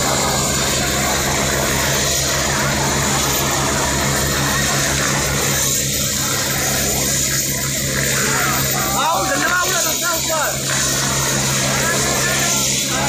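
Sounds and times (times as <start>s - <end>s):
helicopter rotor and engine: 0.0s - 13.0s.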